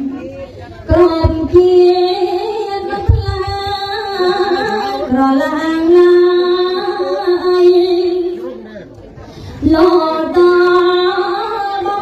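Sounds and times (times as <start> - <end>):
woman chanting into microphone: 9.6 - 12.0.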